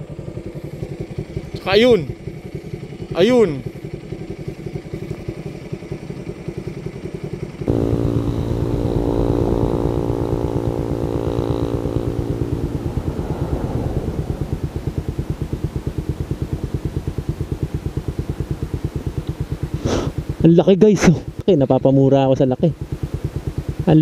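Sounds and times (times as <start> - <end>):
motorcycle engine idling: 0.0 - 24.0
vehicle engine passing by: 7.7 - 20.5.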